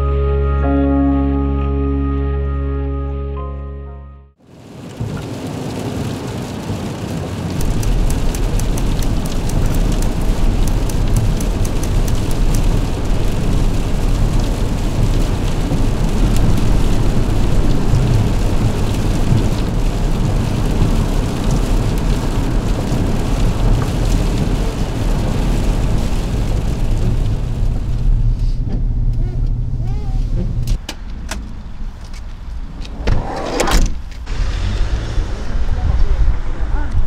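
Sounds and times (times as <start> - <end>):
engine and road noise: 0.0 - 37.0
rain on vehicle roof: 4.4 - 32.8.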